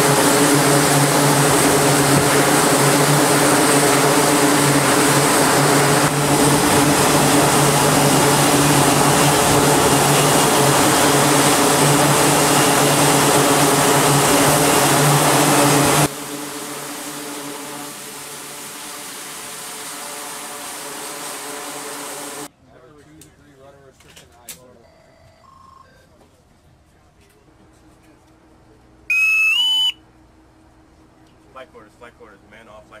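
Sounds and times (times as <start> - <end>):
jet engines rushing: 0.0 - 22.5
constant low hum: 0.0 - 33.0.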